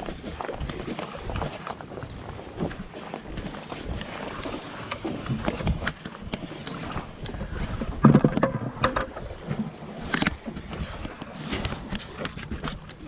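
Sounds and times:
waves lapping against rocks: 0.0s - 13.0s.

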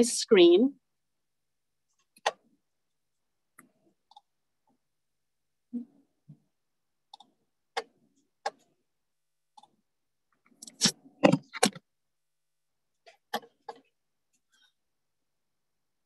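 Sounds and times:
computer mouse clicking: 3.6s - 4.3s, 7.1s - 8.7s.

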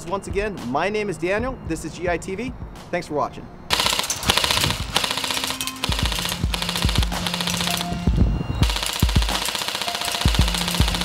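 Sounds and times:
background music with bass beat: 0.0s - 2.9s, 5.8s - 9.4s, 10.2s - 11.0s
airsoft rifle rapid fire: 3.7s - 8.0s, 8.6s - 11.0s.

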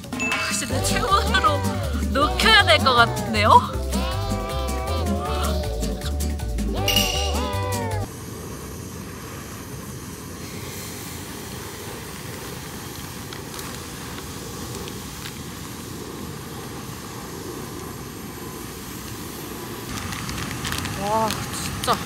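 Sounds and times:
gas stove hissing: 0.6s - 22.0s
meat sizzling on a griddle: 10.4s - 22.0s
plastic bag rustling: 19.9s - 22.0s.

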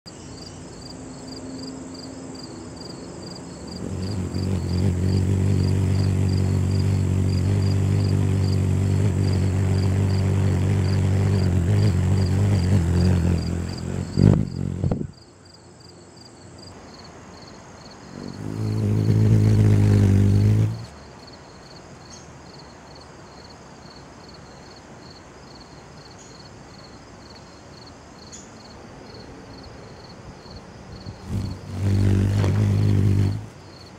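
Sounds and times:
hummingbird wings humming: 0.1s - 15.3s, 18.0s - 21.0s, 31.0s - 33.9s.

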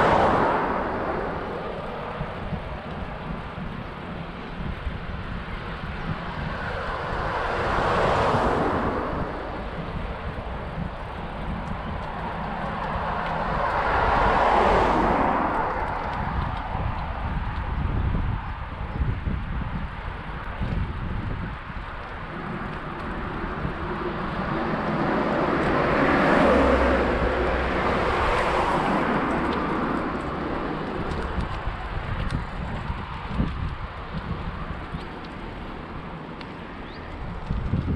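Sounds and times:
vehicle passing: 0.0s - 4.4s, 5.8s - 17.9s, 20.9s - 37.9s
wind buffeting microphone: 0.0s - 37.9s.

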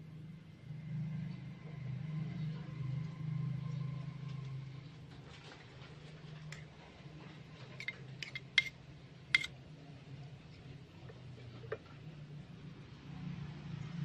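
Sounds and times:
low steady hum: 0.0s - 14.0s
metal utensils clinking on wok: 7.8s - 8.8s.

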